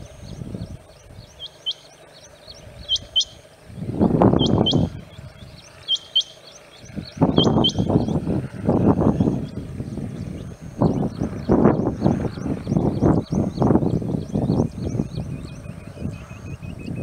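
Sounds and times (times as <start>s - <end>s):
low noise bouts: 0.0s - 17.0s
quail calling high double notes: 5.8s - 6.4s.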